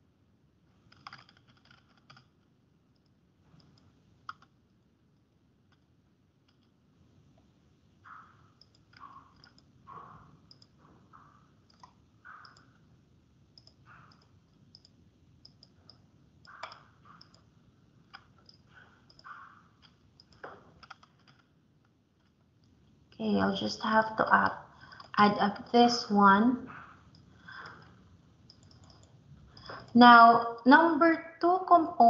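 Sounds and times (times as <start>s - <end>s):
mouse and keyboard clicking: 0.9s - 4.6s, 5.7s - 6.8s, 8.1s - 9.7s, 10.5s - 12.8s, 13.5s - 21.5s, 24.9s - 25.8s, 26.7s - 30.0s.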